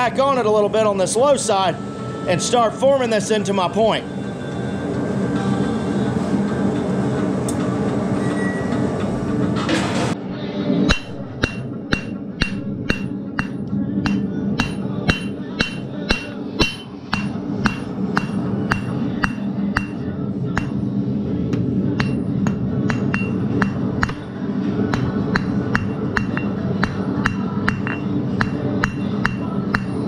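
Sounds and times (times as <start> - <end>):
hammer striking steel on anvil: 10.9 - 20.8, 21.5 - 30.0.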